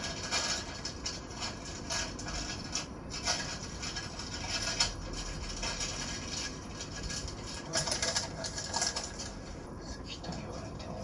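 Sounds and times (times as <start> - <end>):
plastic wrappers crinkling: 1.6 - 9.6.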